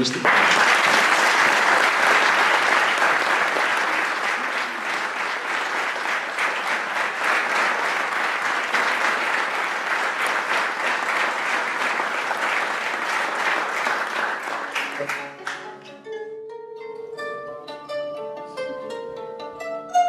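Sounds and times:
audience applauding: 0.0s - 15.9s.

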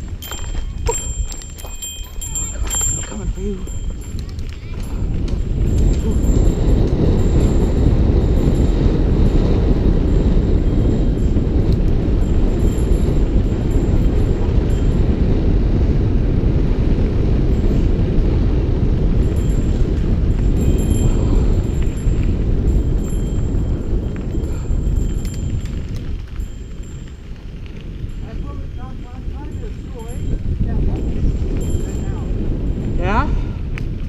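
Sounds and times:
tyres rolling on dirt: 0.0s - 11.2s
mountain bike rumbling down trail: 0.0s - 34.0s
wind buffeting microphone: 0.0s - 34.0s.

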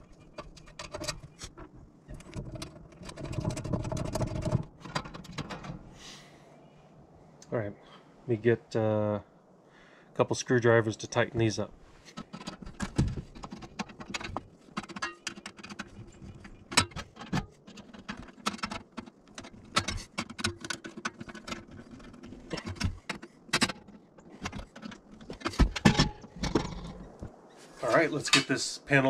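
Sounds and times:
light metal scrapes: 11.9s - 28.7s.

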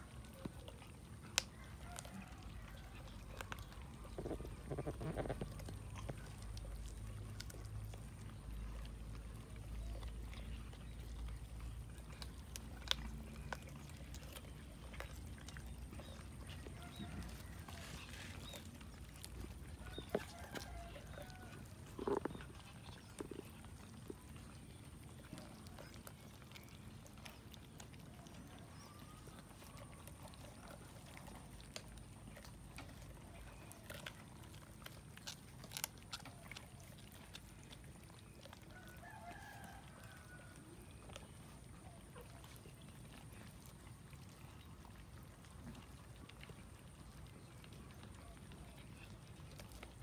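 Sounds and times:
cats chewing and tearing: 0.0s - 50.0s.

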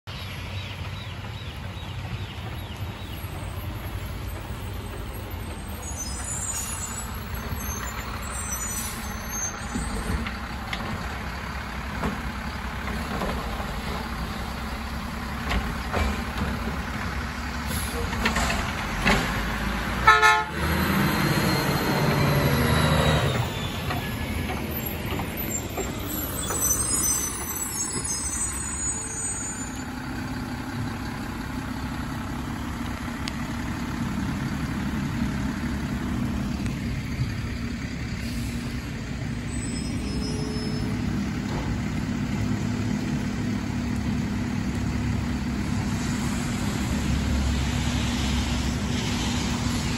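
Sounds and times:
garbage truck engine running: 2.4s - 20.0s, 20.6s - 49.9s.

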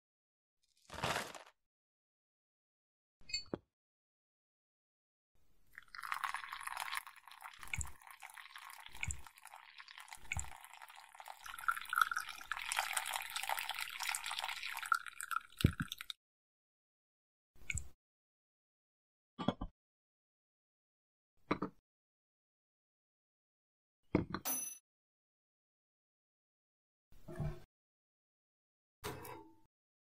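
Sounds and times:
water pouring into a cup: 5.7s - 16.2s.

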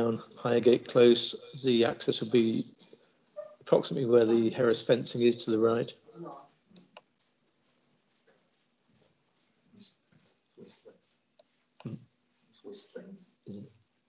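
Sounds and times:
high-pitched chirps: 0.0s - 14.0s.

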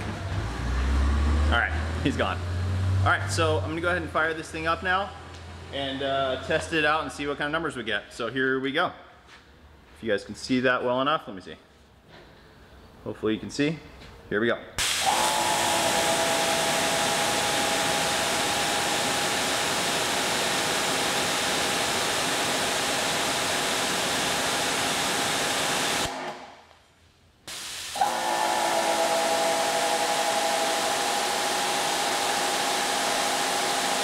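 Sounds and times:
water jet hissing: 14.8s - 26.1s, 27.5s - 34.0s
motor and pump whine: 14.8s - 26.5s, 28.0s - 34.0s.

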